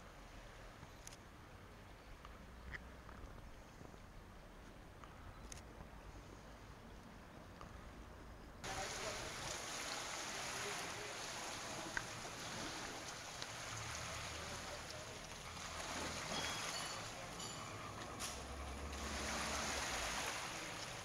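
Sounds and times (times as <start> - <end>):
water rushing: 8.6 - 21.0
outboard engines running: 8.7 - 21.0.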